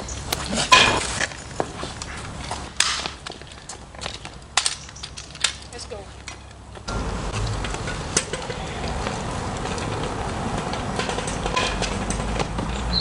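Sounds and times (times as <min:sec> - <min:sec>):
knocks and clatters: 0:07.3 - 0:12.9.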